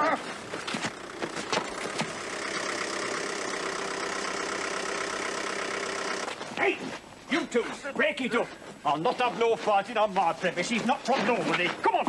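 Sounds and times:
people wrestling scuffling: 0.0s - 2.2s, 6.3s - 12.0s
car engine idling: 0.0s - 7.3s.

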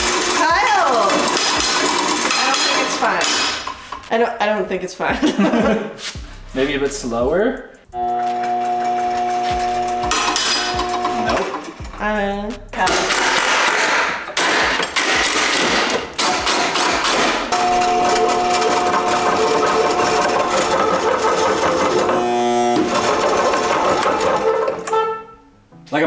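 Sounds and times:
power tool grinding: 0.0s - 4.1s, 8.0s - 12.0s, 12.9s - 25.1s
metal lathe whining: 8.0s - 11.8s, 17.1s - 25.0s.

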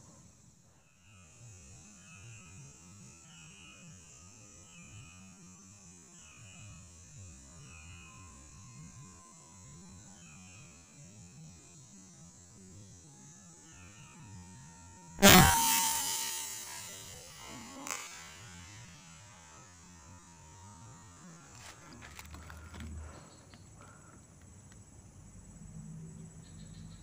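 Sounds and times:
sharp knock: 15.2s - 18.2s.

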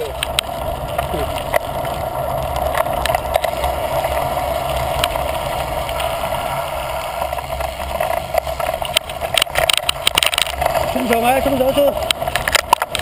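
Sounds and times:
bike clicks and rattles: 0.0s - 13.0s
bike tyres rumbling on dirt: 0.0s - 13.0s
wind noise: 0.0s - 13.0s.

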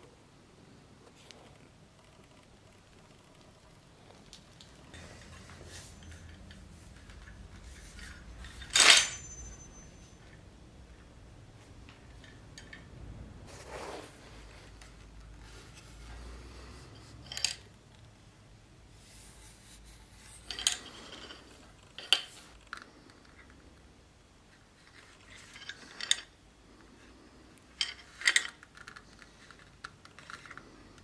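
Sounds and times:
sword clanking with ring: 8.6s - 10.2s.

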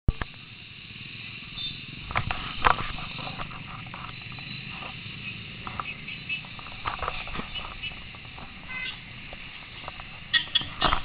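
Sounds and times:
motorcycle engine rumble: 0.1s - 11.0s
street traffic: 0.1s - 11.0s
sharp knocks and clatters: 5.6s - 11.0s.

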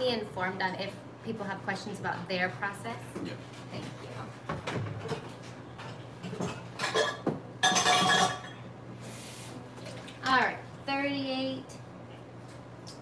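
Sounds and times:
metal pot and utensils clinking: 6.3s - 8.6s.

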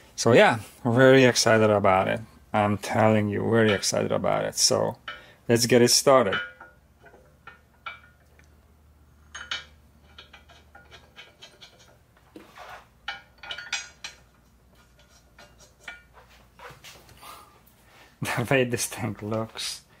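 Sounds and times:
metal tools clinking: 9.3s - 12.0s, 13.1s - 14.3s.

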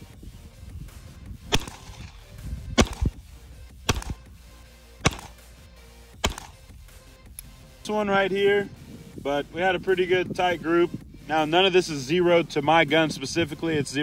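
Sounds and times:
pistol shots: 1.5s - 3.2s, 3.9s - 4.3s, 5.0s - 5.5s, 6.2s - 6.7s.

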